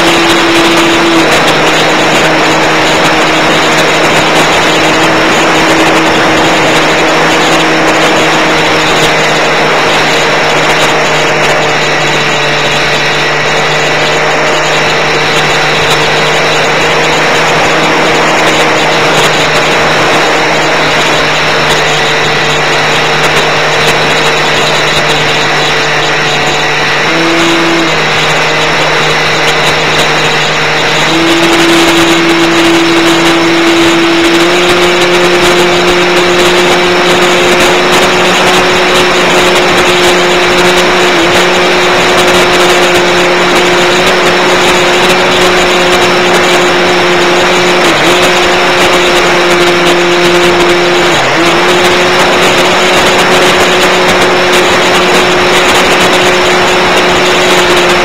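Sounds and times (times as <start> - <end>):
electric motor and propeller: 0.0 - 58.0.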